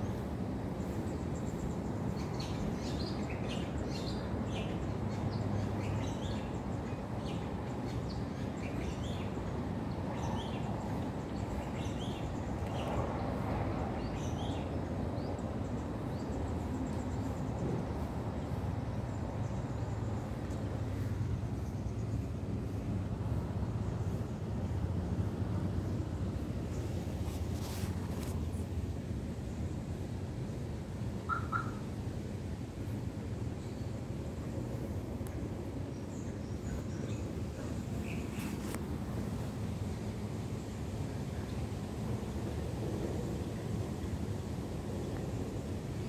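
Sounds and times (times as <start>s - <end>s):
small birds chirping: 0.0s - 24.5s.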